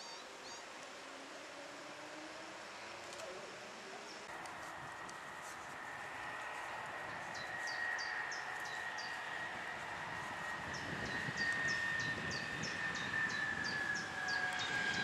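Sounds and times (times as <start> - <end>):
bird chirping: 0.0 - 0.7, 7.1 - 9.4.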